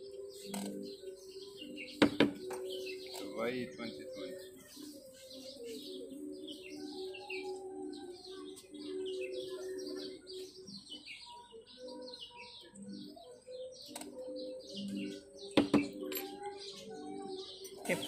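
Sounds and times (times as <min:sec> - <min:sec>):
small birds chirping: 0:00.0 - 0:18.0.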